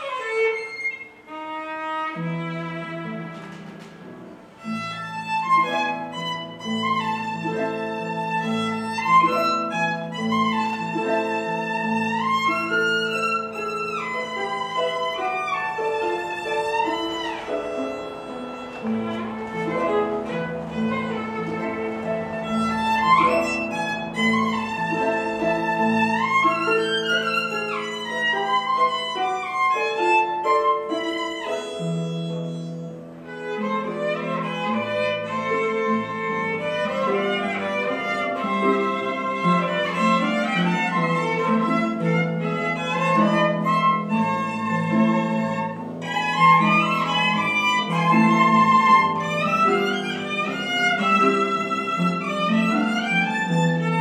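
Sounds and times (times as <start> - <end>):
bowed violin melody: 0.0 - 54.0
harp accompaniment: 0.0 - 54.0.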